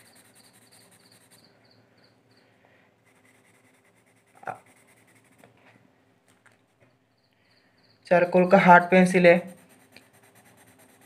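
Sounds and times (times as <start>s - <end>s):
pencils rubbing on paper: 0.0s - 1.5s, 3.0s - 5.5s, 9.0s - 11.0s.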